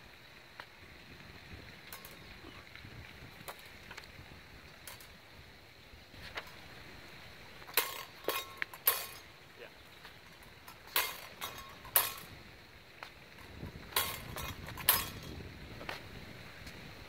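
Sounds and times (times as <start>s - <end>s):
steel blades clinking: 1.9s - 2.3s, 4.8s - 5.2s, 7.6s - 9.4s, 10.0s - 12.4s, 13.9s - 15.4s.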